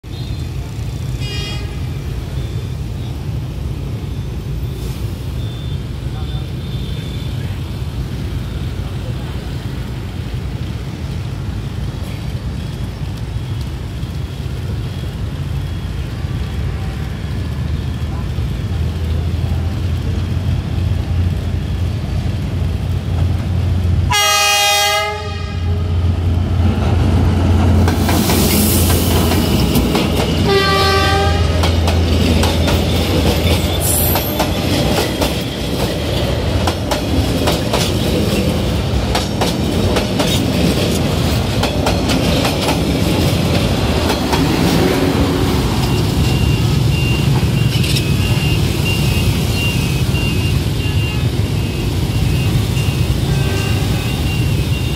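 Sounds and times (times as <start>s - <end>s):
traffic engines rumbling: 0.0s - 54.9s
locomotive horn blast: 24.1s - 26.2s, 30.5s - 31.7s, 53.0s - 54.5s.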